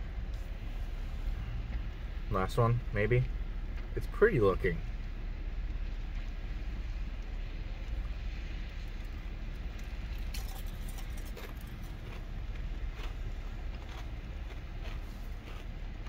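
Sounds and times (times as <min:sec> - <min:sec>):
steady low rumble: 0:00.0 - 0:16.0
ice being chewed: 0:08.9 - 0:16.0.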